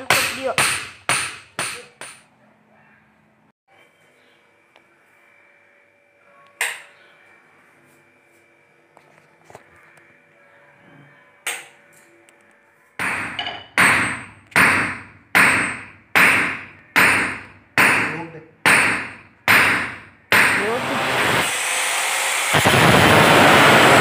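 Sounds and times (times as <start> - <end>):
hammer striking iron rod: 0.0 - 2.3, 13.0 - 20.7.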